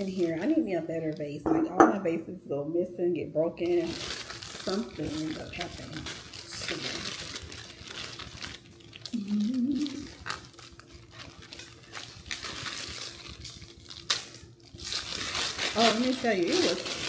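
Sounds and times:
plastic sleeve crinkling: 0.0 - 1.4, 3.6 - 17.0
person humming: 9.1 - 10.1.

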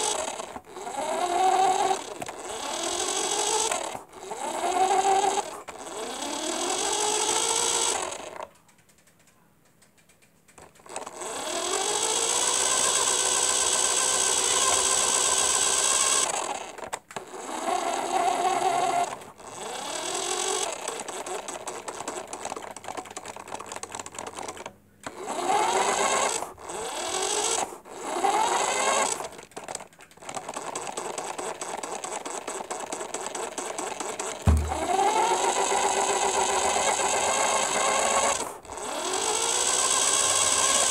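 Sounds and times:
electric motor and propeller whine: 0.0 - 8.3, 34.8 - 40.9
low thump: 34.5 - 35.0.

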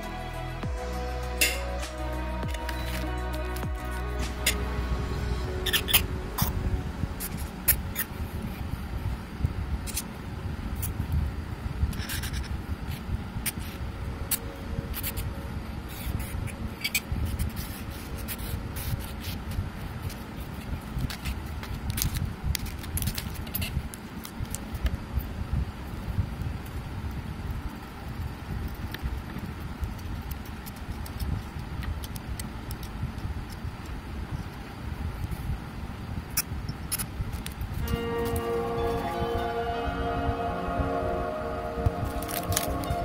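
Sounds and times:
low rumble: 0.0 - 18.8, 37.8 - 43.0.

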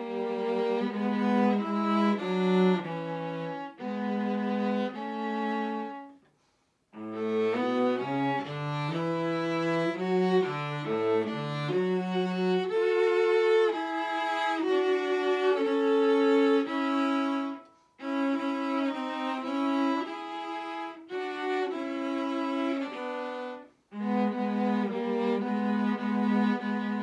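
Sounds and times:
viola and cello duet: 0.0 - 6.2, 7.0 - 27.0.

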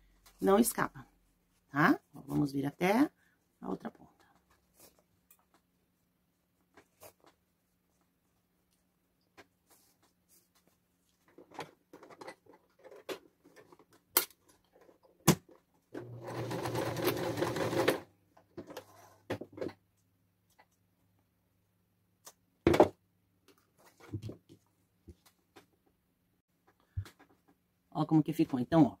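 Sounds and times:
sewing machine stitching: 16.0 - 18.1.

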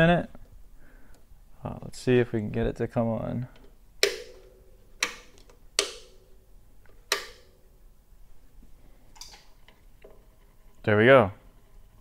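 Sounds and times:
switches clicking with metallic ring: 3.6 - 6.4, 7.0 - 7.6.

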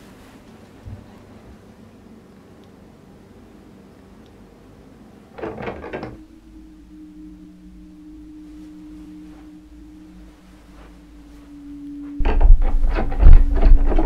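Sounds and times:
low sustained drone tone: 1.0 - 14.0
knocks or scrapes: 12.1 - 14.0.

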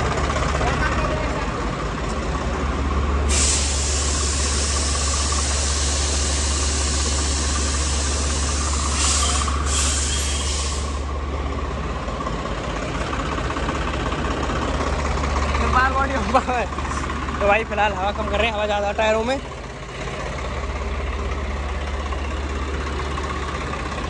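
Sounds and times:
diesel engine idling: 0.0 - 24.0
air hissing from tyre valve: 3.2 - 11.2.

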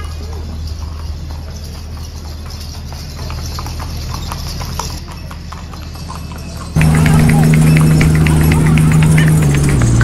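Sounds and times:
horse hooves on brick: 0.0 - 10.0
low hum: 6.8 - 10.0.

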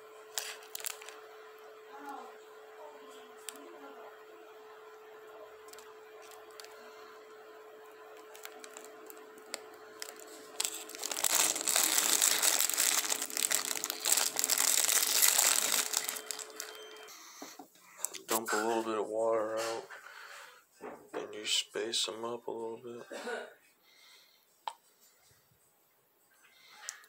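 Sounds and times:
faint steady hum: 0.0 - 27.0
loud dense crinkling: 0.3 - 1.2, 8.2 - 17.1.

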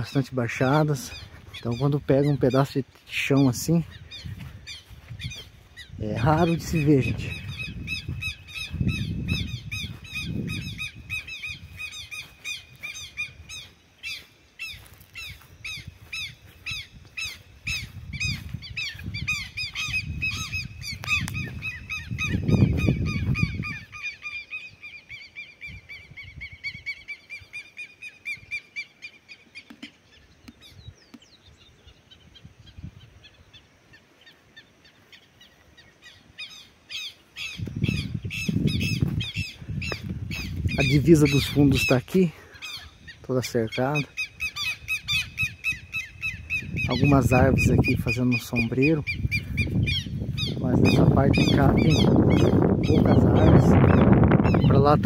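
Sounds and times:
birds calling rapidly: 0.0 - 55.0
low rumbling gusts: 3.7 - 13.6, 15.5 - 24.0, 37.5 - 41.7, 44.3 - 55.0.

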